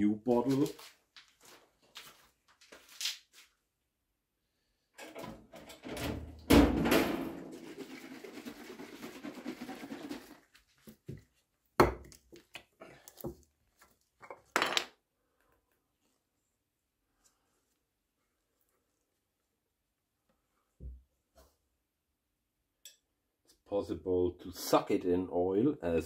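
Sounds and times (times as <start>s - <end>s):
knocks and loud thunk: 6.5s - 7.4s.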